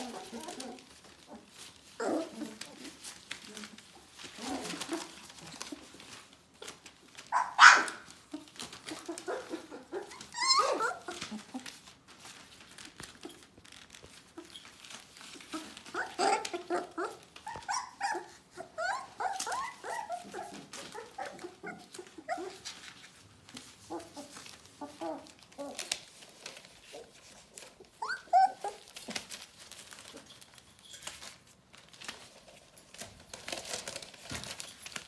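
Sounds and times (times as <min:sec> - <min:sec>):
puppies whimpering and yipping: 0:00.0 - 0:06.2, 0:07.2 - 0:12.0, 0:14.3 - 0:26.0, 0:26.9 - 0:30.3
paws scratching on newspaper: 0:00.0 - 0:35.0
puppy yelp: 0:07.2 - 0:11.8, 0:15.3 - 0:22.9, 0:27.8 - 0:29.3.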